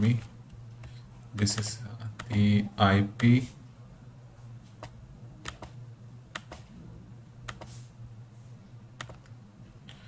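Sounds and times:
low steady hum: 0.0 - 10.0
mouse and keyboard clicks: 4.8 - 6.7, 7.5 - 7.8, 9.0 - 9.3.

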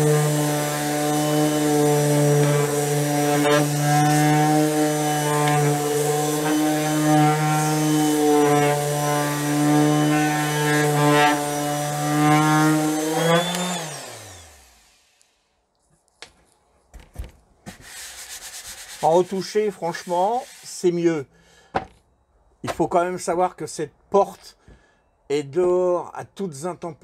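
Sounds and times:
orbital sander on wood: 0.0 - 15.2, 17.8 - 20.8.

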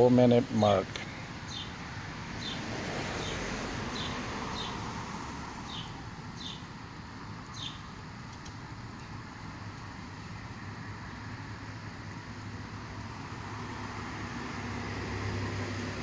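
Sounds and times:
outdoor background noise: 0.0 - 16.0
bird chirping: 1.0 - 1.8, 2.4 - 4.8, 5.6 - 6.7, 7.5 - 7.9.

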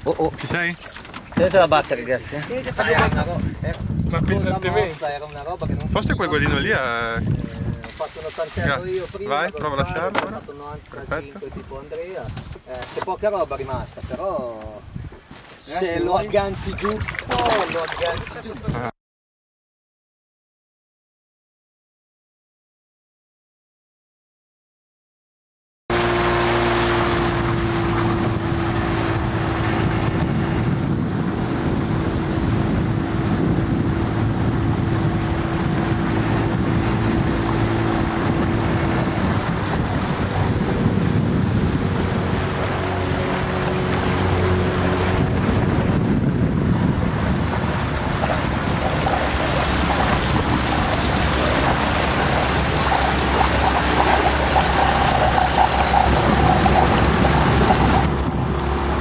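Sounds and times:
wind noise on microphone: 0.0 - 18.9, 25.9 - 59.0
water rushing past hull: 15.0 - 18.9, 25.9 - 59.0
outboard motor running: 25.9 - 59.0.

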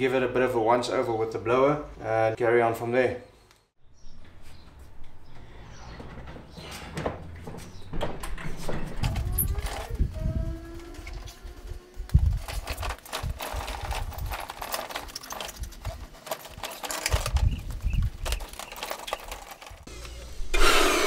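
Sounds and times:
electric blower air rush: 19.9 - 21.0.

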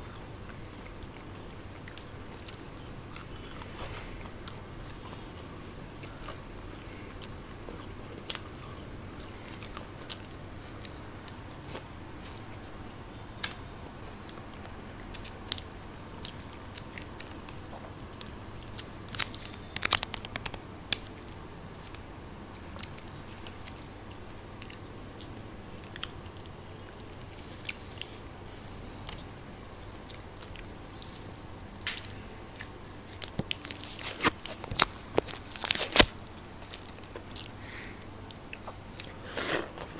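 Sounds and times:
chewing and crunching snack food: 0.0 - 39.9
crisp clicks: 14.3 - 22.0, 29.8 - 37.6.

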